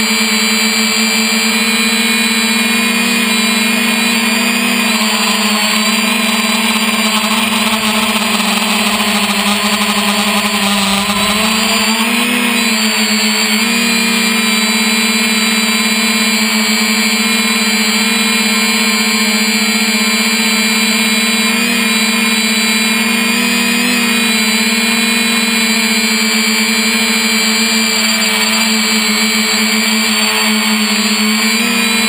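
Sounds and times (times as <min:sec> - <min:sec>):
drone propellers buzzing: 0:00.0 - 0:32.0.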